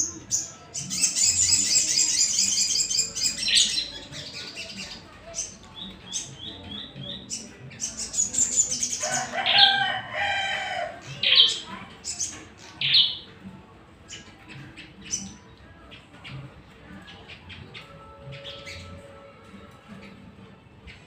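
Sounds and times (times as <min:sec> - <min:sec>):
songbirds chirping: 0:00.0 - 0:21.0
rooster crowing: 0:09.0 - 0:11.0.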